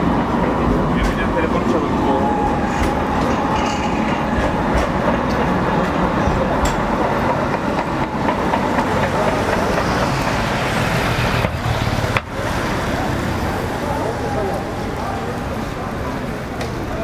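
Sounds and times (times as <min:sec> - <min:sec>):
traffic on wet street: 0:00.0 - 0:17.0.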